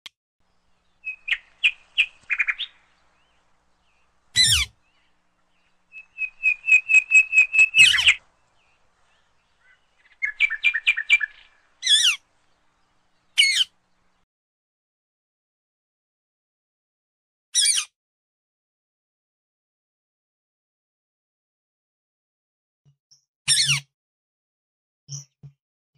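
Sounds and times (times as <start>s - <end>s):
parakeet chirping: 0.9s - 3.2s, 4.4s - 4.8s, 5.9s - 8.2s, 9.1s - 12.2s, 13.4s - 13.7s
parakeet squawking: 4.4s - 4.8s, 6.2s - 8.2s, 9.6s - 12.2s, 13.4s - 13.7s.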